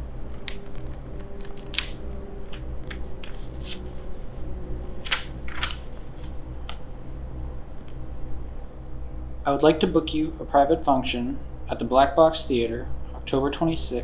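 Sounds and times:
paper crackling and rustling: 2.5 - 4.0.

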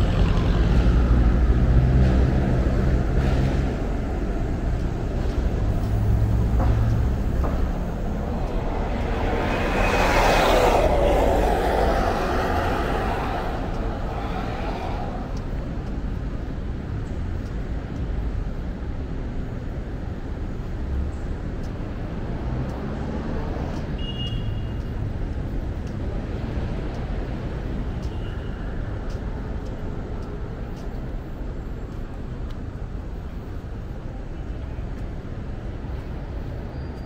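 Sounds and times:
city traffic rumble: 0.0 - 37.0.

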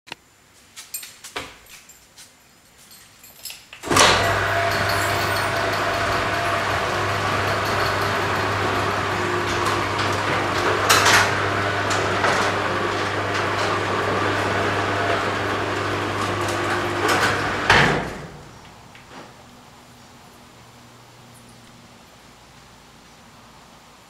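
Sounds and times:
door panels rattling and clanking: 3.8 - 18.7
door clunking: 3.8 - 19.4
garage door motor hum: 3.8 - 20.0.

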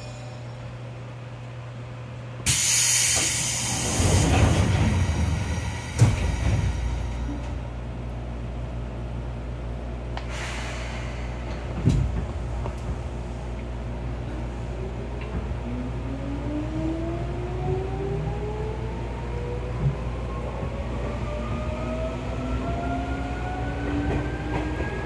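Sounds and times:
air hiss of train doors: 2.5 - 7.6, 10.2 - 12.4
doors sliding rumble: 2.9 - 8.3, 10.4 - 17.9
clunk: 5.9 - 7.6.

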